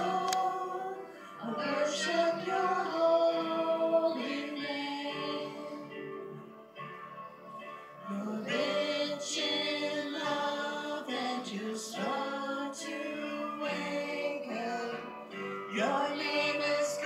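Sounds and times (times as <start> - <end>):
group singing worship song: 0.0 - 6.4, 8.0 - 17.0
keyboard chords: 0.0 - 17.0.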